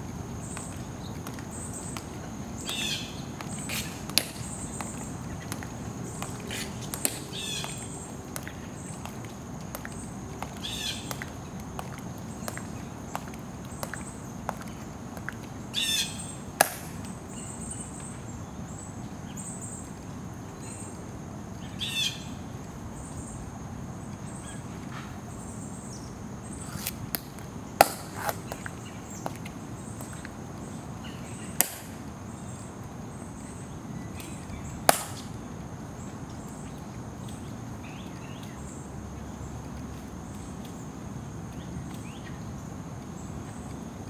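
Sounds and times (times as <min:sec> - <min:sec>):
heel clicks on pavement: 0:00.2 - 0:15.6, 0:16.6 - 0:17.2, 0:26.6 - 0:30.7, 0:31.6 - 0:32.1.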